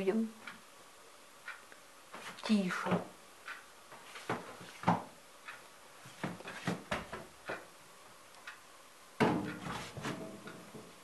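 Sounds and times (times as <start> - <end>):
light knocks and taps: 4.2 - 5.1, 9.2 - 11.0.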